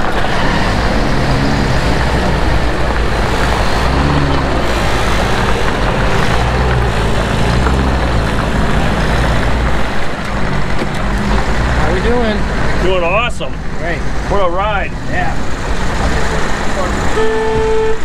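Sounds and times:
tyres rolling over gravel: 0:00.0 - 0:13.4
jeep engine rumbling: 0:00.0 - 0:18.0.

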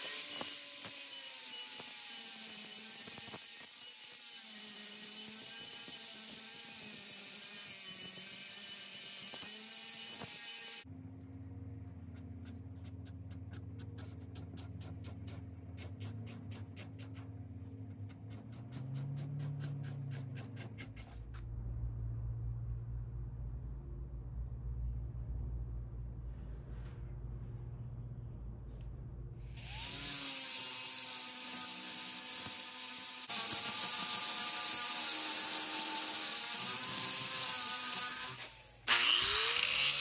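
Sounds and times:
angle grinder grinding steel: 0:00.0 - 0:10.9, 0:29.4 - 0:40.0
low hum: 0:21.2 - 0:29.6.

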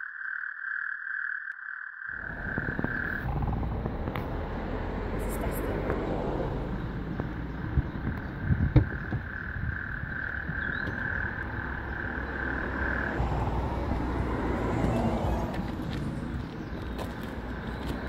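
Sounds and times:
sharp knocks: 0:08.6 - 0:09.3
high heel on gravel: 0:15.5 - 0:18.0.

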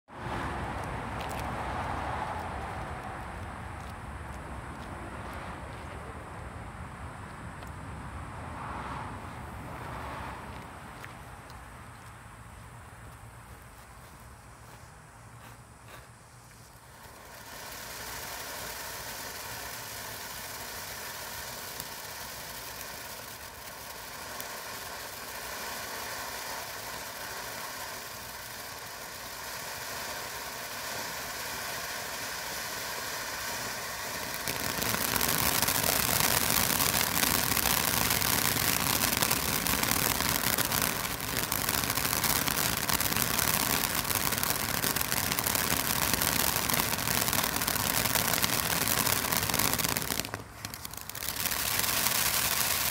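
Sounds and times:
firework fountain hissing: 0:16.1 - 0:52.9.

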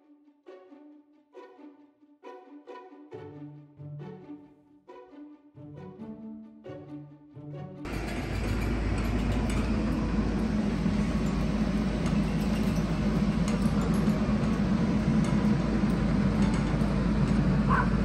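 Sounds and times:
faint metallic clinks: 0:07.9 - 0:17.5
excavator diesel engine running: 0:07.9 - 0:18.0.

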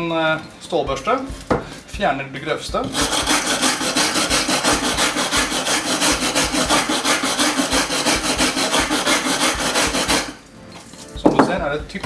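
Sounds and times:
wire brush scrubbing rusted metal: 0:02.9 - 0:10.4.

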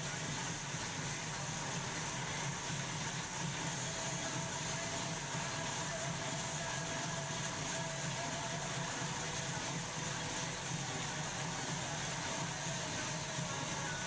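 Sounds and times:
bike trainer whirring: 0:00.0 - 0:14.0.

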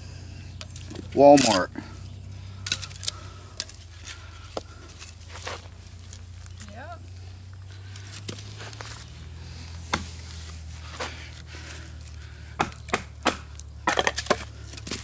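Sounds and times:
hatchet chopping firewood: 0:02.6 - 0:05.6, 0:09.8 - 0:15.0.

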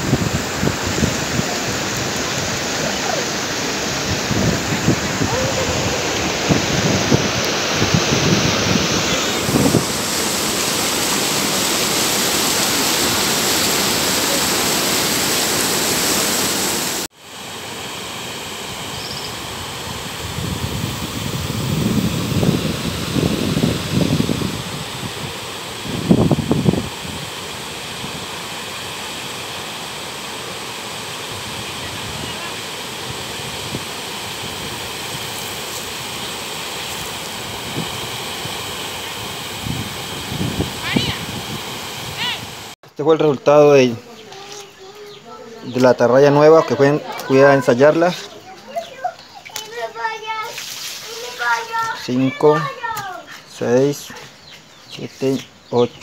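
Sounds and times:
wind buffeting microphone: 0:00.0 - 0:10.4, 0:19.8 - 0:27.4, 0:36.9 - 0:42.8
river water rushing over rapids: 0:00.0 - 0:20.2, 0:22.8 - 0:42.8.

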